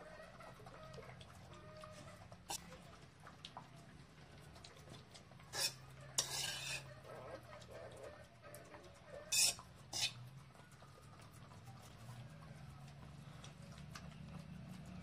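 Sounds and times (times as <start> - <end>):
dog eating: 0.0 - 6.2, 6.8 - 15.0
metal spoon clinking on steel bowl: 5.6 - 6.9.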